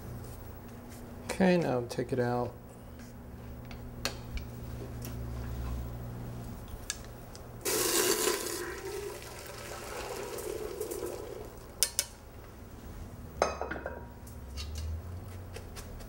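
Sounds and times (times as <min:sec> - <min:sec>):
water pouring through strainer: 0:07.7 - 0:11.7.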